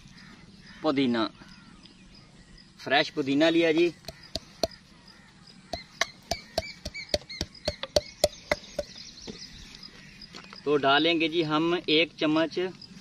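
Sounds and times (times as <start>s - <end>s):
wooden pestle pounding in mortar: 4.0s - 4.8s, 5.7s - 9.0s.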